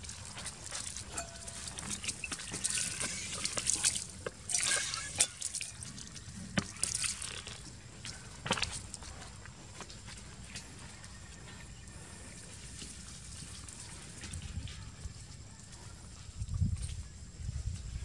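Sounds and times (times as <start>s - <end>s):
water splashing: 0.0s - 9.0s
water drips: 0.0s - 9.2s.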